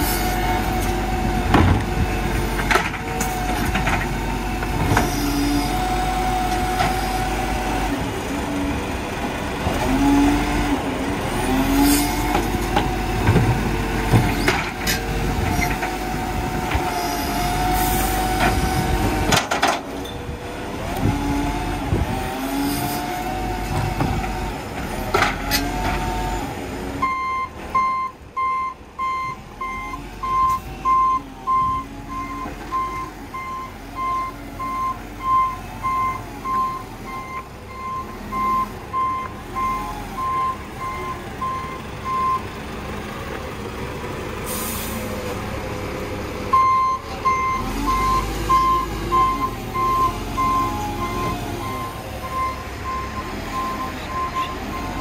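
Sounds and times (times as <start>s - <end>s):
diesel engine running: 0.0s - 55.0s
reversing alarm beeping: 27.0s - 42.5s, 46.5s - 55.0s
air brake hiss: 44.5s - 45.2s.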